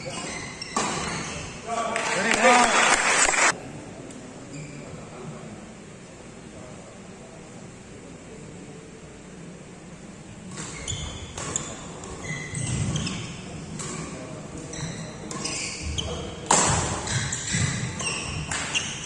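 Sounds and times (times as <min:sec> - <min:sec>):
shoes squeaking on court floor: 0:00.0 - 0:01.7, 0:04.5 - 0:05.0, 0:10.5 - 0:19.0
rackets hitting shuttlecock: 0:16.5 - 0:18.8.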